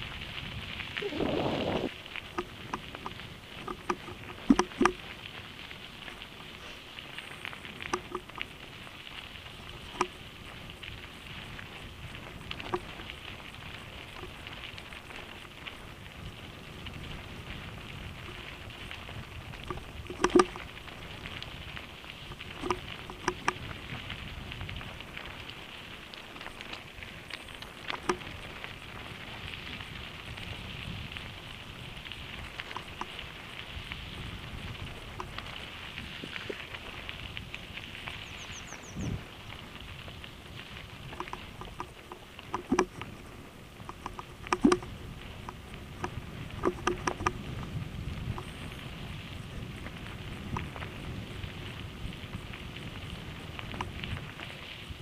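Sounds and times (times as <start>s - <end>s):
bike tyres crunching on gravel: 0.0s - 55.0s
bike knocking over stones: 1.2s - 8.8s, 17.0s - 30.5s, 40.7s - 48.7s.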